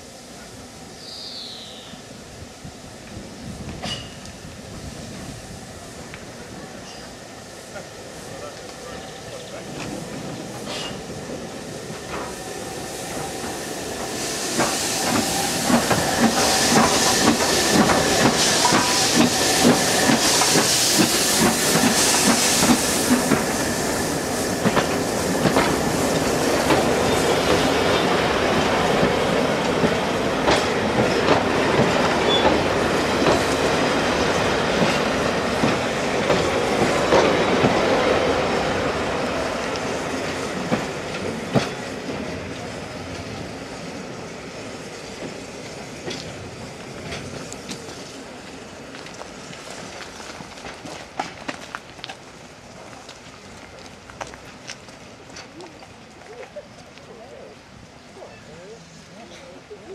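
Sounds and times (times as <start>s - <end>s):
steam engine hissing: 0.0s - 54.6s
wheels clacking over rail joints: 13.1s - 23.7s, 24.6s - 38.4s, 39.3s - 43.5s, 45.1s - 57.2s.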